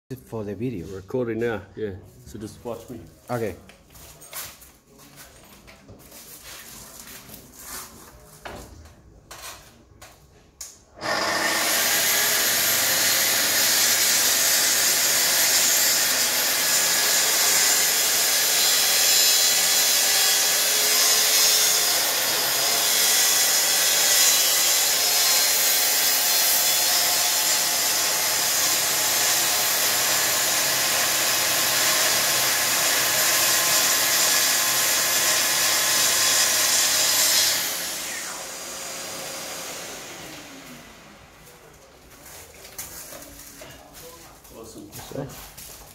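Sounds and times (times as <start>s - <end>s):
dust extractor running: 11.0s - 16.9s, 27.1s - 41.8s
plunge saw cutting timber: 11.0s - 41.4s.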